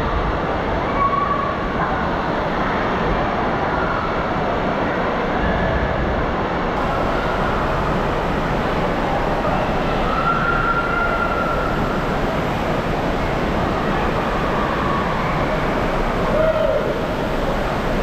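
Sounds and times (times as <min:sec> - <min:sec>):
echoing hall noise: 0:06.8 - 0:18.0
water rushing down slides: 0:06.8 - 0:18.0.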